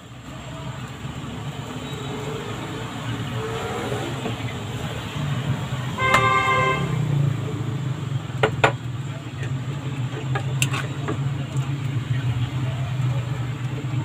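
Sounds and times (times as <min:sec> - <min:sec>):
vehicle horn toot: 0:05.9 - 0:07.0.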